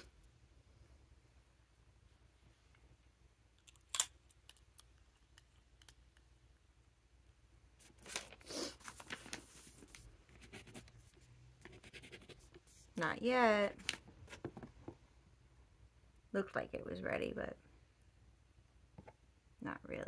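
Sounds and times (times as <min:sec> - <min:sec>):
pen nib scratching on paper: 0:11.6 - 0:13.0.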